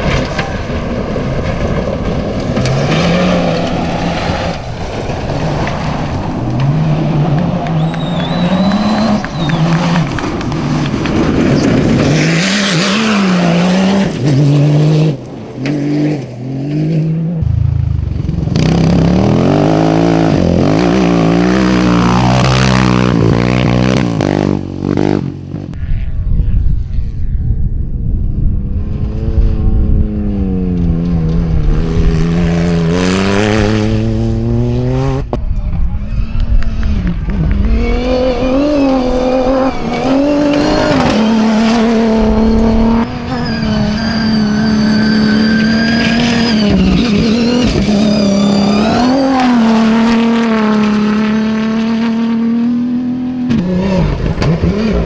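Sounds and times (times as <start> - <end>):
tyres on gravel: 0.0 - 14.4
car engines revving hard: 1.6 - 25.8, 28.8 - 35.4, 36.1 - 55.0.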